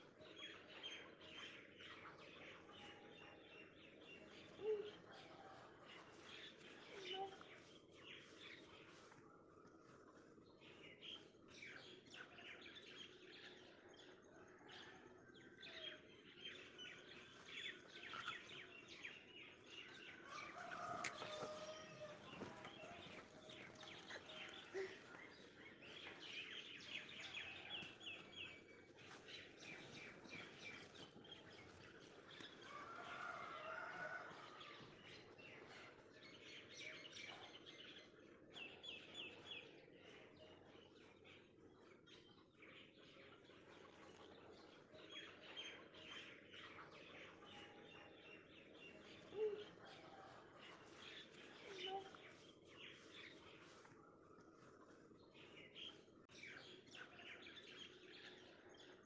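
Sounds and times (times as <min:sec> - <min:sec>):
small birds chirping: 0:15.7 - 0:59.0.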